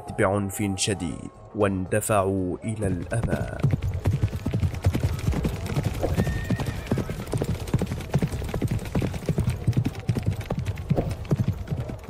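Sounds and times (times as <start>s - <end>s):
horses galloping: 2.8s - 12.0s.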